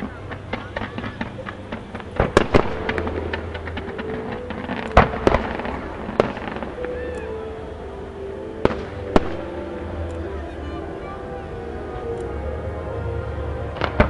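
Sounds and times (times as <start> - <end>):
firework bangs: 0.0 - 7.4, 8.6 - 9.8, 13.8 - 14.0
firework crackle: 0.0 - 10.6, 13.7 - 14.0.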